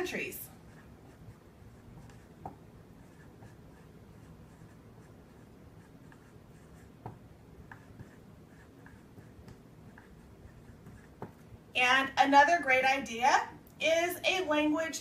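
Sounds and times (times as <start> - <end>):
marker writing on whiteboard: 0.0 - 11.5
pen tapping on board: 7.0 - 8.2, 8.8 - 11.4.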